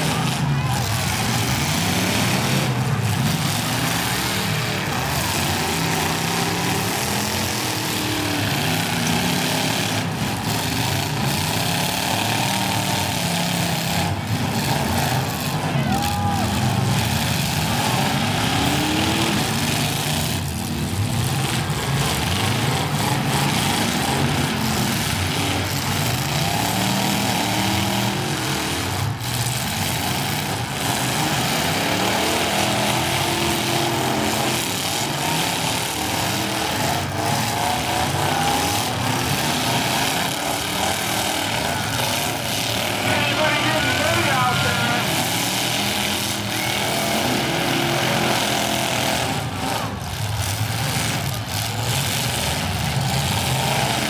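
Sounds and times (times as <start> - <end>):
car engines revving hard: 0.0 - 54.0.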